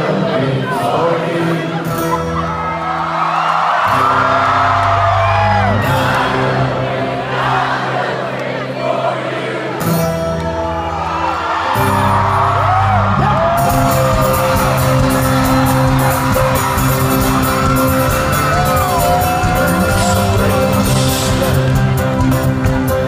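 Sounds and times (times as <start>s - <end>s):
folk-rock band playing live: 0.0s - 7.2s, 9.7s - 23.0s
crowd whooping and singing along: 0.0s - 23.0s
fast strummed rhythm: 11.8s - 23.0s.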